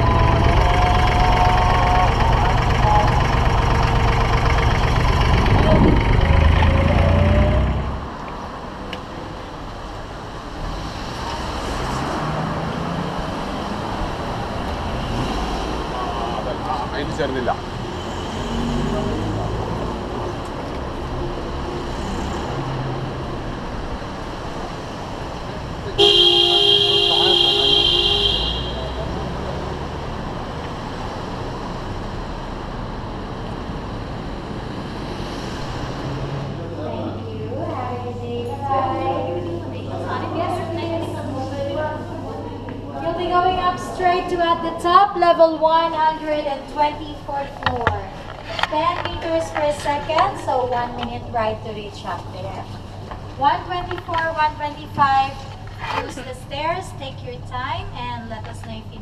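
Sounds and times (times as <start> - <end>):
boat engine idling: 0.0 - 7.1
cars driving past: 0.0 - 54.3
traffic rushing: 0.0 - 59.0
wind on microphone: 5.4 - 6.2.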